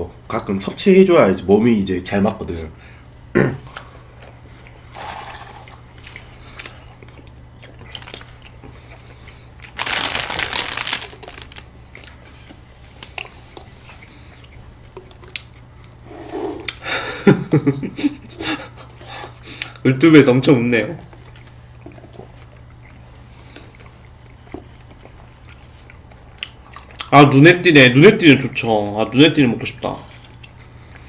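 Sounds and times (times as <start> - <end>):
faint chewing: 5.6 - 9.8, 11.1 - 16.8, 21.1 - 27.1, 29.8 - 31.0
small clicks of eating: 6.0 - 9.8, 11.4 - 16.0, 21.1 - 27.2, 29.7 - 31.0
plastic bag crinkling: 7.7 - 8.6, 9.6 - 12.2.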